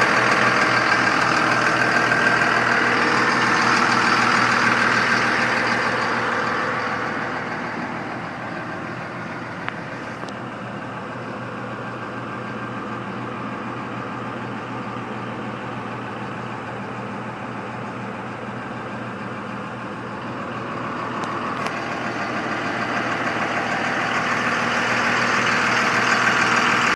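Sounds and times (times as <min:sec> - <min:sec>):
diesel truck engine idling: 0:00.0 - 0:26.9.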